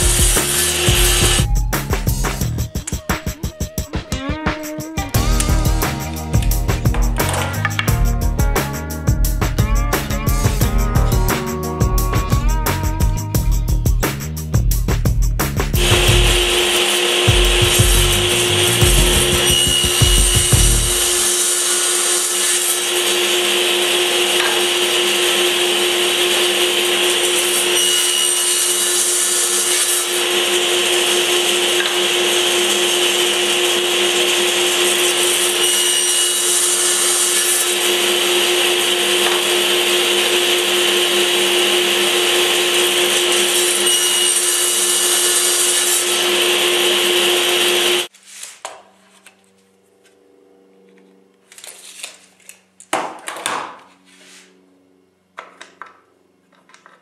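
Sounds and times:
table saw running: 0.0 - 1.5, 15.8 - 48.1.

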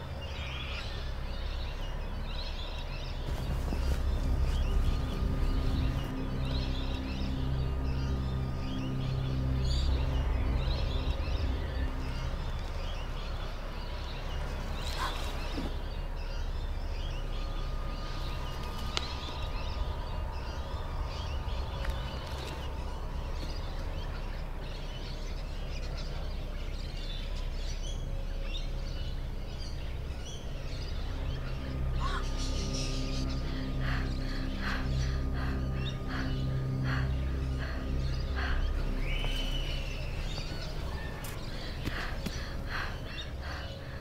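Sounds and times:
birds chirping and singing: 0.0 - 44.0
steady low hum: 0.0 - 44.0.

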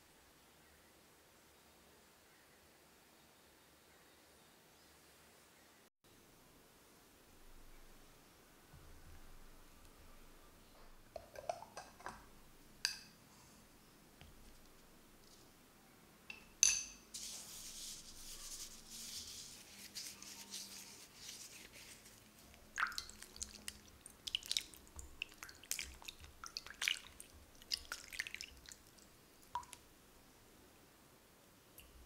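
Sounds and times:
soft hiss: 0.0 - 32.0
clink against glass bowl: 16.3 - 17.1
water splashing and dripping: 22.5 - 29.8.

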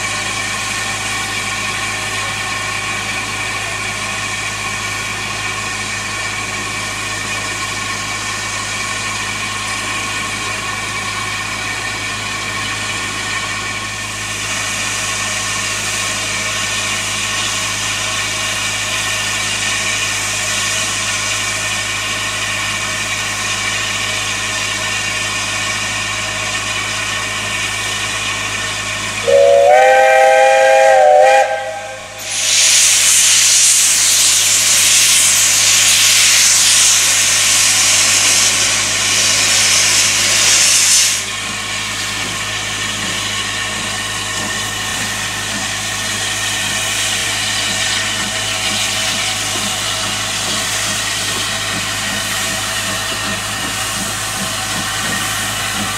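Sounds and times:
loud rush of steam: 0.0 - 26.3, 29.0 - 55.9
steam locomotive hissing: 0.0 - 55.9
steam whistle blast: 29.2 - 32.8.

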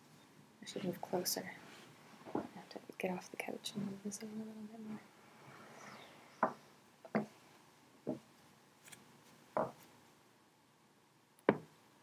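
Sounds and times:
objects knocking on wooden table: 9.6 - 9.8.

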